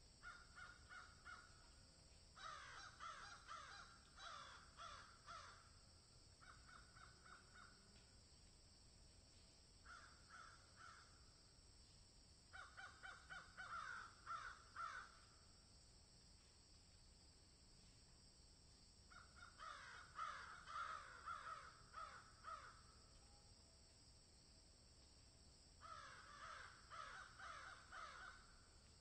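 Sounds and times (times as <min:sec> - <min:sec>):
crows cawing: 0:00.2 - 0:01.6, 0:02.4 - 0:05.7, 0:06.4 - 0:07.7, 0:09.8 - 0:11.2, 0:12.5 - 0:15.3, 0:19.1 - 0:22.9, 0:25.8 - 0:28.5.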